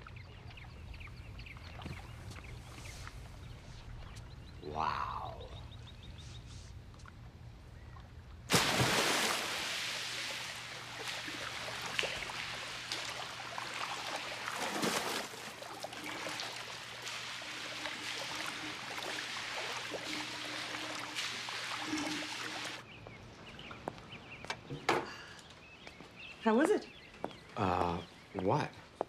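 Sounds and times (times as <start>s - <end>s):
body splashing into pool: 8.5s - 22.8s
swimming splashes: 8.5s - 22.8s.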